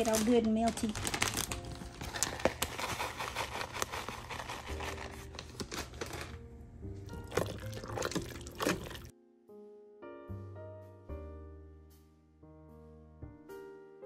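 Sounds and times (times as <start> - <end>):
plastic bag crinkling: 0.0 - 6.4
soft background music: 0.0 - 14.0.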